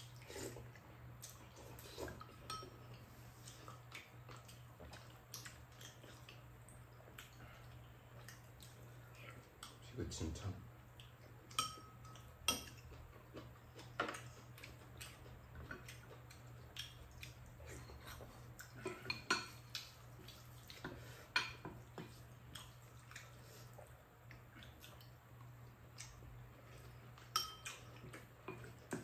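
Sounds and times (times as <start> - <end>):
low steady hum: 0.0 - 29.0
utensils clinking on ceramic bowls: 27.3 - 27.8.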